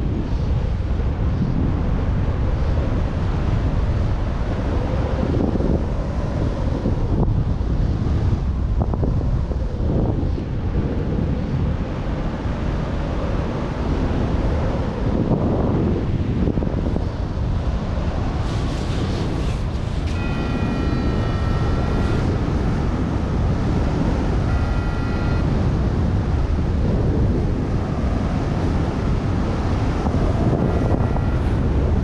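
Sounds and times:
wind buffeting microphone: 0.0s - 32.0s
variometer electronic tone: 20.0s - 26.5s, 27.8s - 32.0s.

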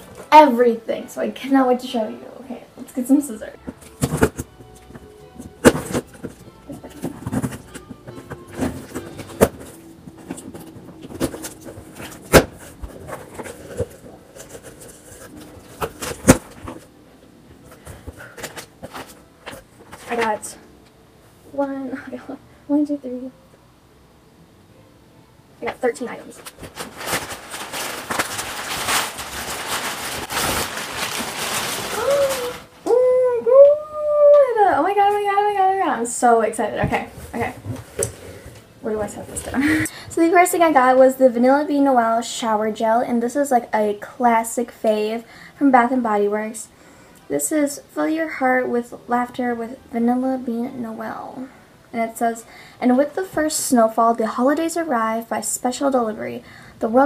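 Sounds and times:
box and tape rustling: 3.6s - 16.9s, 17.5s - 20.6s, 25.6s - 32.8s
high-pitched wavering vocal sound: 31.9s - 34.6s.

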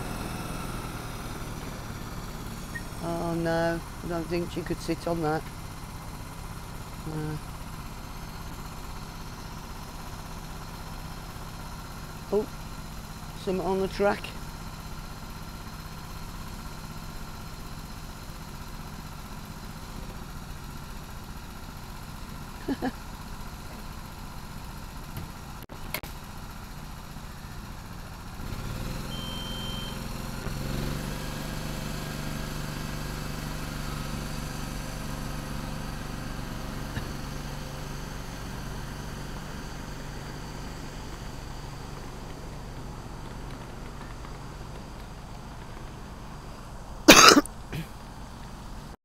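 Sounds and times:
small train engine humming: 0.0s - 49.0s
short high beep: 29.1s - 30.0s.

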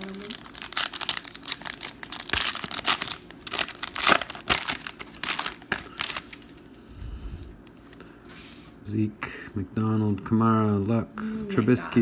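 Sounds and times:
foil wrapper crinkling and tearing: 0.0s - 6.7s.

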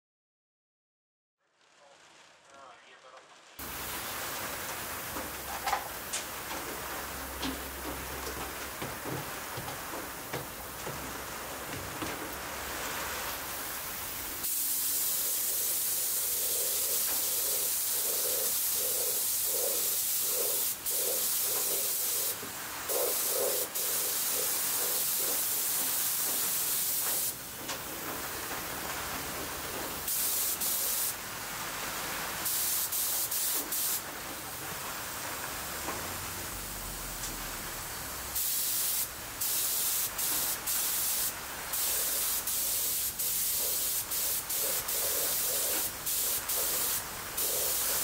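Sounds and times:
air spray gun hissing: 3.6s - 28.2s, 29.7s - 31.2s, 32.4s - 34.2s, 38.3s - 48.0s.

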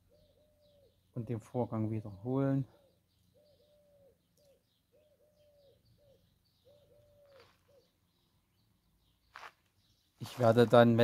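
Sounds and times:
dove cooing: 0.0s - 1.0s, 2.7s - 8.0s.

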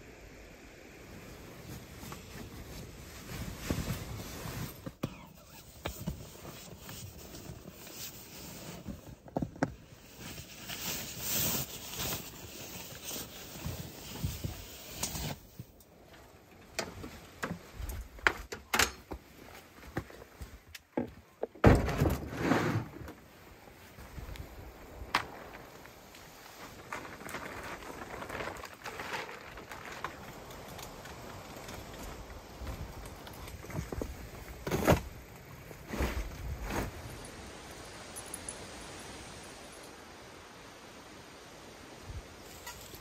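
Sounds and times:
bedding rustling: 1.6s - 9.2s, 21.6s - 37.5s
cooler thud and scrape: 21.6s - 23.2s, 34.6s - 35.2s.

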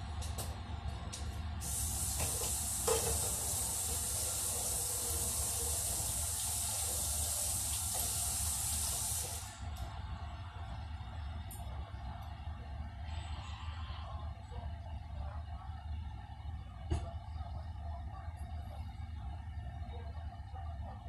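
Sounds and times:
kitchen tap running: 1.6s - 9.6s.

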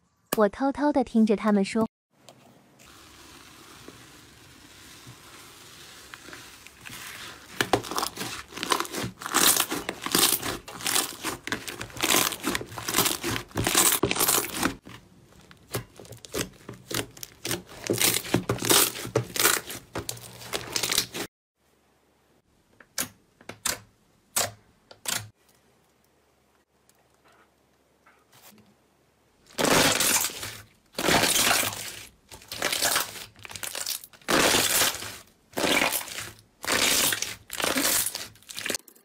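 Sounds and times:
slime crackling and popping: 4.7s - 14.8s, 29.6s - 38.8s.

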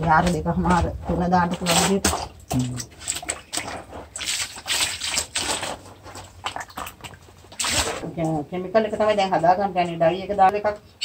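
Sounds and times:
liquid sloshing in a tank: 0.0s - 8.4s.

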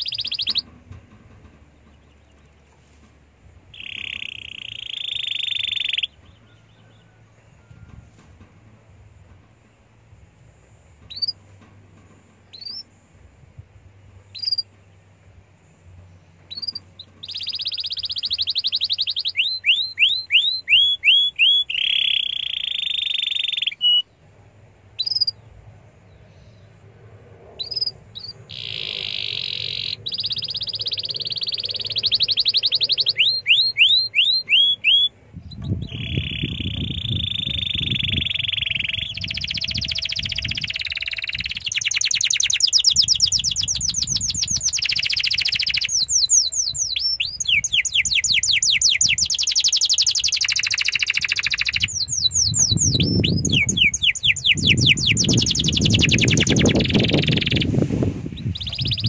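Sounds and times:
canary singing: 0.0s - 2.7s, 3.6s - 7.8s, 11.0s - 11.7s, 14.2s - 15.2s, 16.2s - 24.1s, 25.0s - 25.5s, 27.6s - 59.0s
low rumble: 24.0s - 33.4s, 35.1s - 41.7s.

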